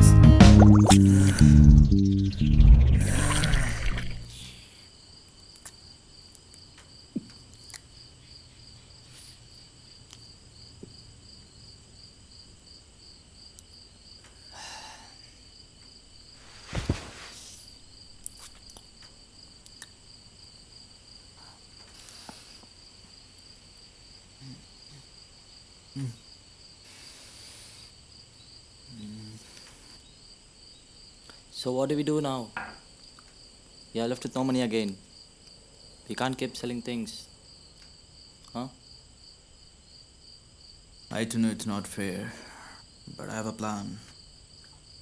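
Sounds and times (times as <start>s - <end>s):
crickets chirping: 0.8s - 45.0s
thump: 16.7s - 17.3s.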